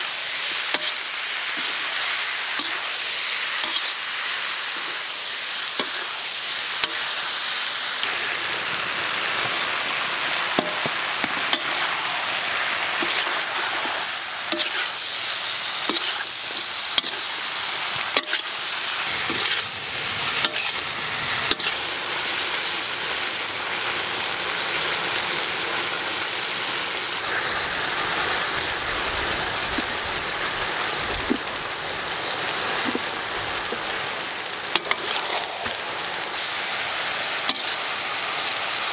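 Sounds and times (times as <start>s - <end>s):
food sizzling in a wok: 0.0s - 38.9s
metal ladle scraping a pan: 3.5s - 4.0s, 11.4s - 12.0s, 13.0s - 15.0s, 15.9s - 17.3s, 19.2s - 19.7s, 20.4s - 20.8s, 34.7s - 35.8s.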